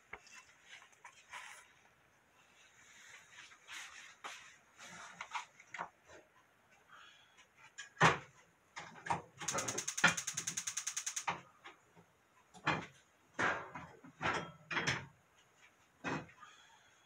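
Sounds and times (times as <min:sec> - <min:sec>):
fast clicking rattle: 0:09.4 - 0:11.4.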